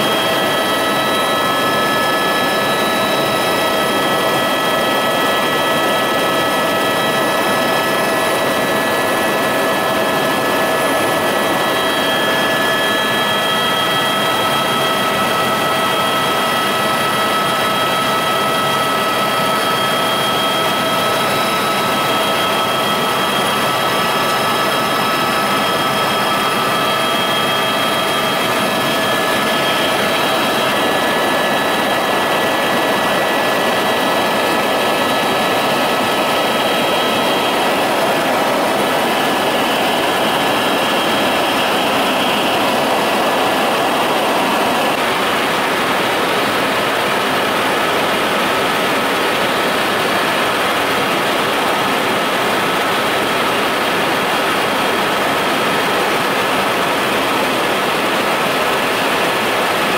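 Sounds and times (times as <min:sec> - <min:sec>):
steady whining tones: 0:00.0 - 0:53.8
engine drone: 0:26.2 - 0:55.1.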